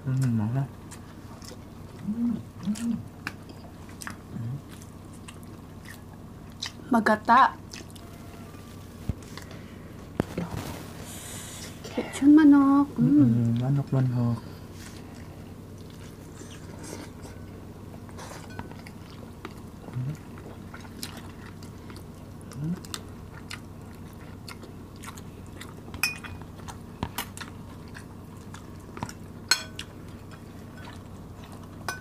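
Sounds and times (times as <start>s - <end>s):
steady low hum: 0.0s - 32.0s
chewing food: 0.1s - 6.9s, 7.6s - 10.8s, 14.8s - 31.9s
person humming: 2.0s - 3.1s, 13.0s - 13.6s, 19.9s - 20.2s, 22.5s - 22.8s
metal spoons clinking on glass: 29.5s - 29.8s.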